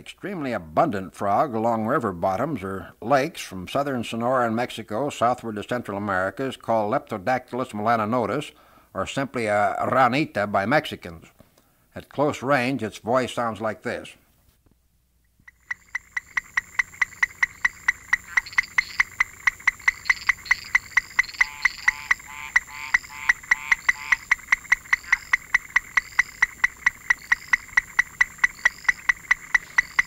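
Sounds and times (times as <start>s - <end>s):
frog calling short sharp notes: 15.4s - 30.0s
higher rising chirps: 15.5s - 30.0s.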